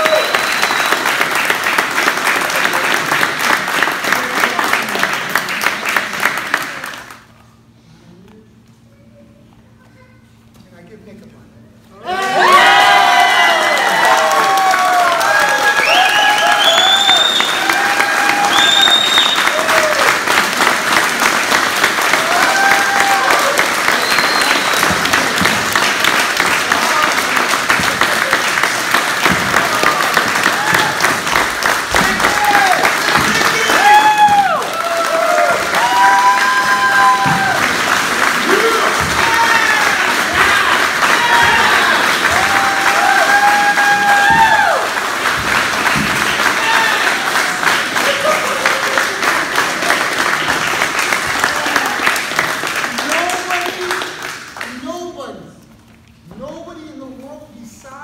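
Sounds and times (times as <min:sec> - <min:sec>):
people applauding: 0:00.0 - 0:07.7, 0:12.1 - 0:55.4.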